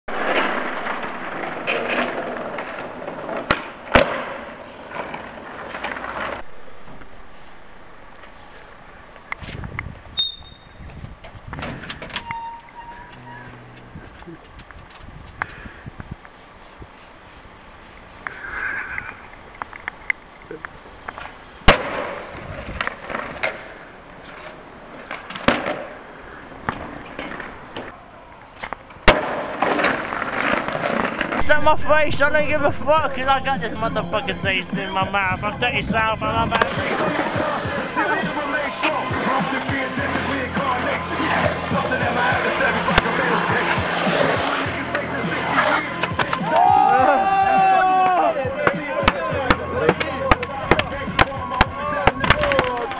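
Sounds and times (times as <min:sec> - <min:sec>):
skateboard cracks: 0:00.1 - 0:06.4, 0:18.2 - 0:31.4, 0:36.5 - 0:52.9
skateboard wheels rolling on brick: 0:00.1 - 0:52.9.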